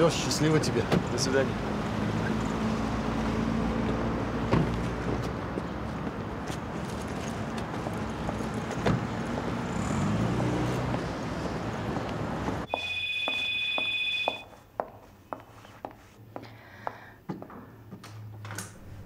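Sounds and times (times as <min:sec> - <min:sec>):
telephone ringing: 0:12.7 - 0:14.5.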